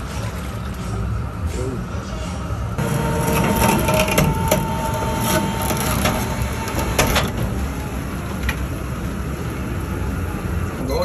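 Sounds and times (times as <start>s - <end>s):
electric hoist motor whine: 2.8s - 10.8s.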